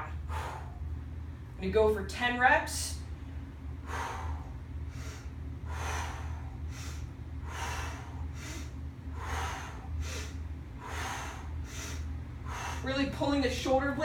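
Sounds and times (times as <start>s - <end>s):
woman breathing in and out: 0.0s - 1.1s, 3.3s - 13.2s
low steady hum: 0.0s - 14.0s.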